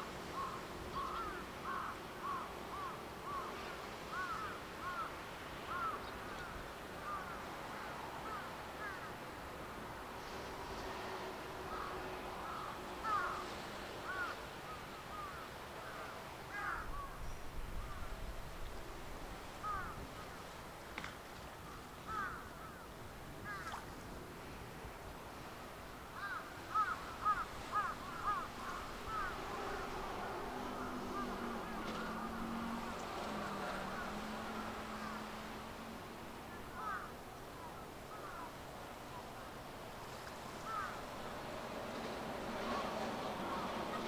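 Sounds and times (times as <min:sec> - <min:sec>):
birds calling: 0:00.2 - 0:07.4, 0:11.7 - 0:18.1, 0:19.6 - 0:20.4, 0:21.6 - 0:22.8, 0:26.2 - 0:35.9, 0:36.6 - 0:37.1, 0:40.7 - 0:41.0.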